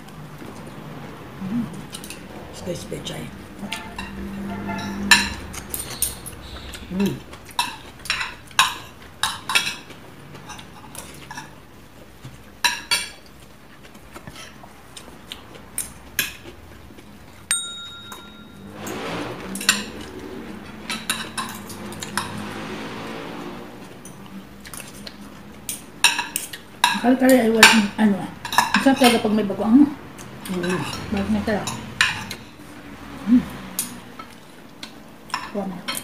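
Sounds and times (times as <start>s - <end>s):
cutlery clinking on plates: 3.6s - 11.6s, 17.5s - 18.7s, 24.1s - 29.3s, 30.5s - 32.5s.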